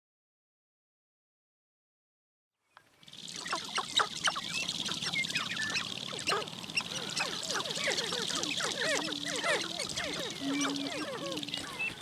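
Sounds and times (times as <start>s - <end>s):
steady high buzz: 3.0s - 12.0s
grouse chorus of short calls: 3.1s - 12.0s.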